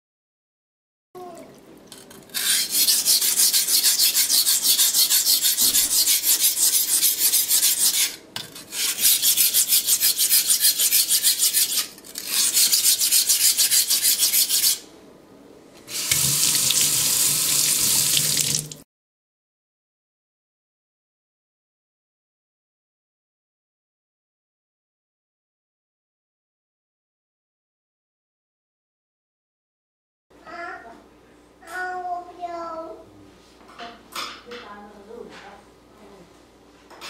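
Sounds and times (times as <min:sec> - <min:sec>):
knife rasping on whetstone: 0:02.3 - 0:14.9
tap running into steel sink: 0:16.0 - 0:17.0, 0:17.6 - 0:18.8.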